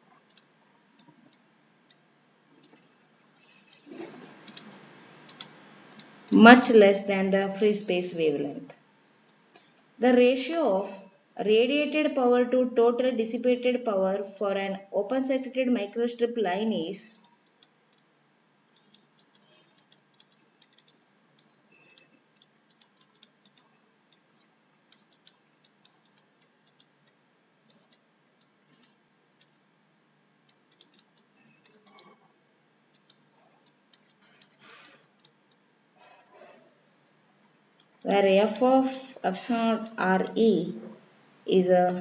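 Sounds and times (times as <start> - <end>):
stylus tapping and scratching on tablet: 0.1 - 6.8, 18.7 - 29.6, 30.4 - 36.8.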